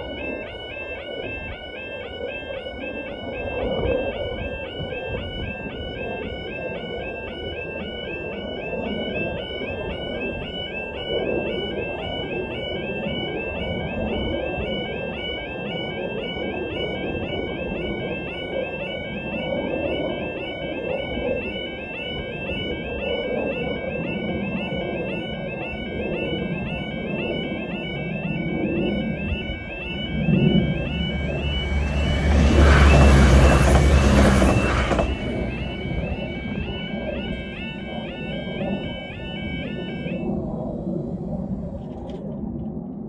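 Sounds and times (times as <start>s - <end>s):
level crossing alarm warble: 0.0s - 41.8s
low rumble: 28.1s - 43.0s.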